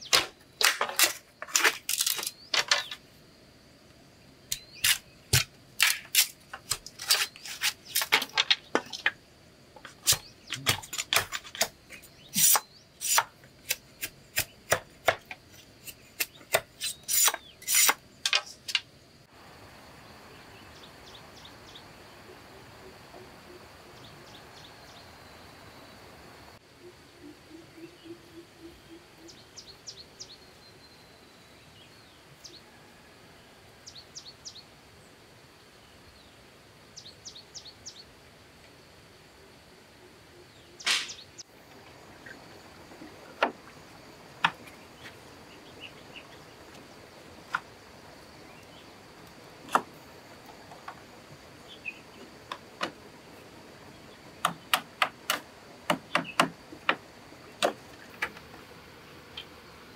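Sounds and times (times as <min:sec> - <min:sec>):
sharp knocks and clicks: 0:54.4 - 0:57.0.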